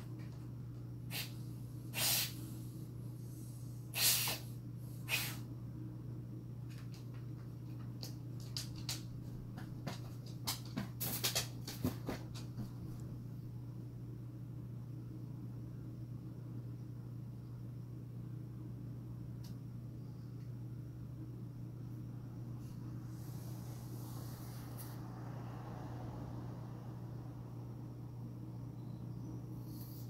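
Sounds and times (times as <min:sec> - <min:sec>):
dog sniffing: 0:01.1 - 0:02.5, 0:04.0 - 0:05.4
low hum: 0:12.6 - 0:29.9.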